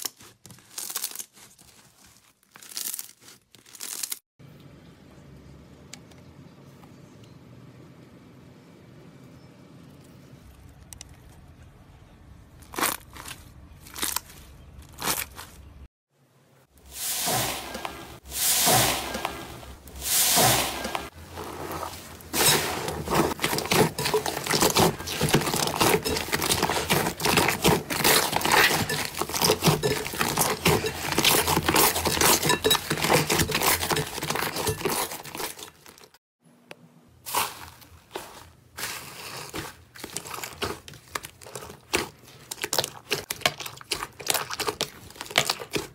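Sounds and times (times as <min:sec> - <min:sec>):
slime squishing and squelching: 0:00.0 - 0:04.2, 0:12.6 - 0:15.9, 0:16.9 - 0:36.2, 0:37.3 - 0:45.9.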